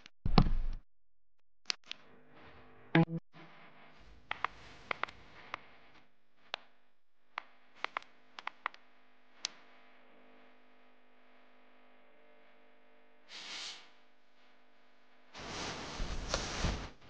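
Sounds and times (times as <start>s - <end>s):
steady low hum: 14.7s - 17.0s.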